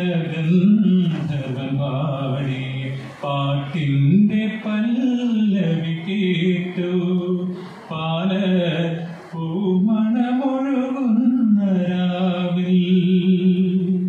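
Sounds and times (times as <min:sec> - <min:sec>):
man singing unaccompanied: 0:00.0 - 0:14.0
singer breathing: 0:07.4 - 0:08.0.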